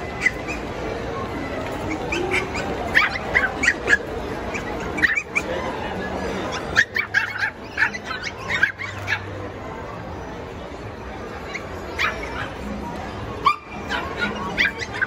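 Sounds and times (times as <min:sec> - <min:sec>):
puppies yapping: 0:00.0 - 0:05.8, 0:06.4 - 0:09.4, 0:11.4 - 0:12.7, 0:13.4 - 0:15.0.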